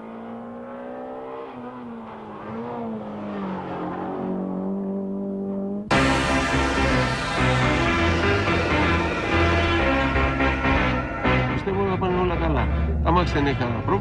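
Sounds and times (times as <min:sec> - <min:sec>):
rally car engine under load: 0:00.0 - 0:14.0
music: 0:05.9 - 0:14.0.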